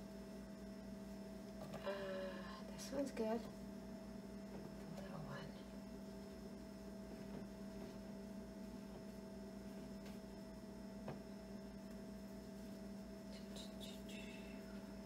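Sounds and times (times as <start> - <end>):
low electrical hum: 0.0 - 15.0
soft handling sounds: 6.1 - 10.4.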